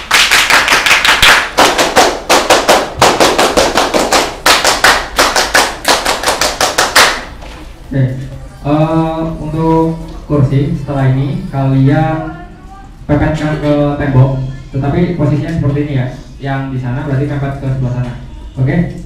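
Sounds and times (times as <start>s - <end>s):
people clapping in rhythm: 0.0s - 7.4s.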